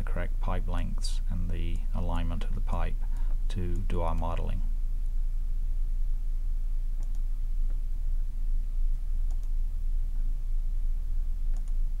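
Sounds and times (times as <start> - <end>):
low electrical hum: 0.0 - 12.0
faint mouse clicks: 7.0 - 7.8, 8.9 - 9.6, 11.5 - 11.8.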